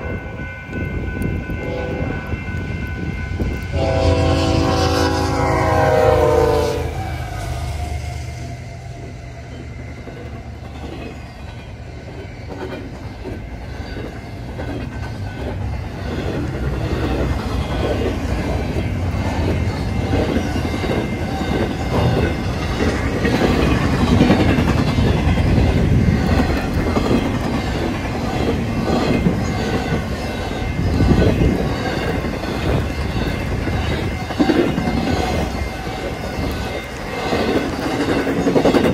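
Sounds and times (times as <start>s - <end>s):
freight train passing: 0.0s - 38.9s
wheels clicking over rail joints: 8.9s - 38.9s.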